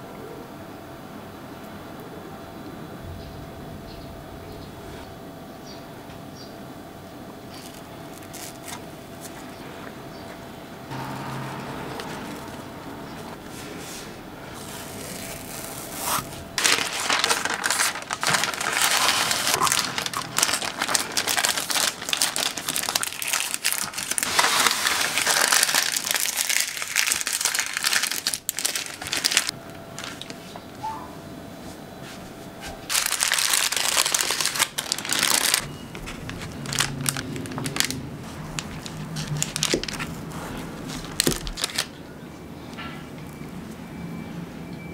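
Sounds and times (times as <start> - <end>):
baking parchment crinkling: 7.5 - 10.4, 13.2 - 30.4, 32.9 - 42.0.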